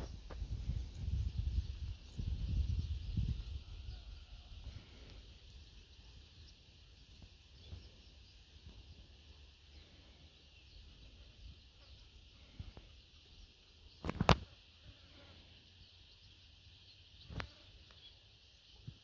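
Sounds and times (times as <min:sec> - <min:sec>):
distant bird chirps: 0:00.0 - 0:19.0.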